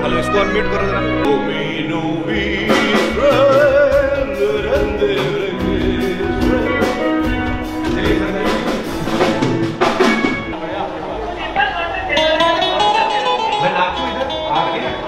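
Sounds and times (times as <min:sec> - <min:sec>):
music with drum beat: 0:02.6 - 0:10.6.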